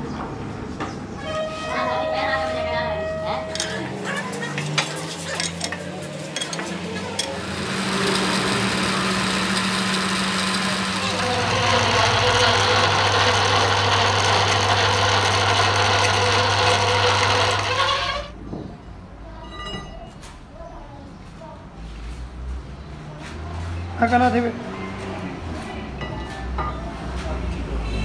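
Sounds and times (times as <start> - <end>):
metal lathe running: 6.3 - 18.4
low machine hum: 7.0 - 18.3.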